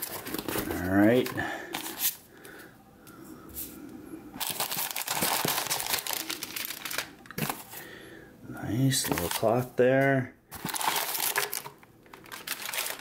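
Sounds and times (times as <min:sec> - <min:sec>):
packing paper rustling: 0:00.0 - 0:02.2, 0:04.4 - 0:07.9, 0:08.9 - 0:09.8, 0:10.5 - 0:13.0.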